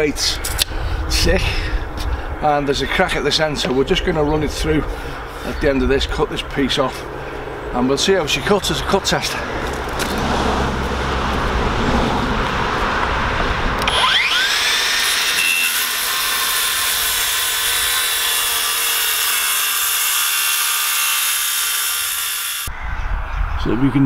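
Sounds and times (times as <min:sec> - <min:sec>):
circular saw whining: 0:12.1 - 0:22.7
saw cutting through wood board: 0:13.8 - 0:22.7.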